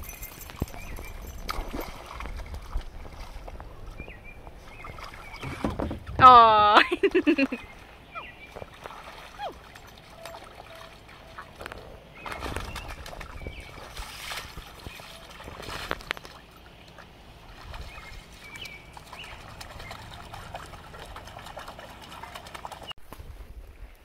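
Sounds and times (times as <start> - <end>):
water sloshing and splashing: 0.0 - 23.0
bird chirps: 7.5 - 8.6.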